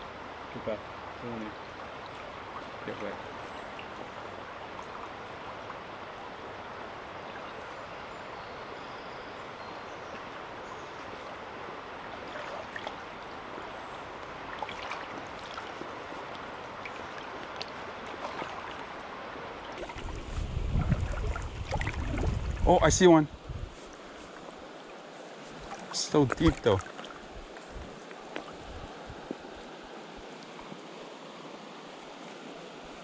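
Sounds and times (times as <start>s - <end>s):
river water running: 0.0s - 33.0s
splashes from wading: 12.1s - 22.6s, 25.5s - 27.4s.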